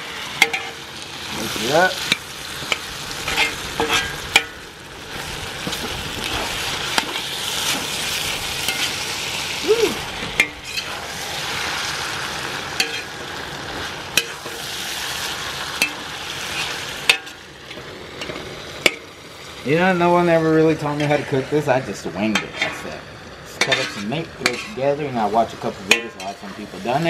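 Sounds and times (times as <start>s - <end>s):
metal spatula scraping a pan: 0.0s - 0.8s, 1.6s - 4.6s, 5.6s - 9.0s, 10.2s - 11.9s, 12.8s - 13.3s, 14.1s - 15.2s, 20.9s - 21.5s, 23.6s - 27.0s
meat sizzling in oil: 0.0s - 27.0s.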